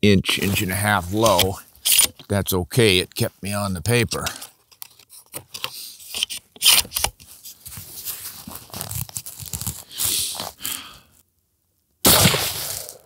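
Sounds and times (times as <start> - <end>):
rustling handling noise: 0.2 - 2.4, 3.2 - 10.6.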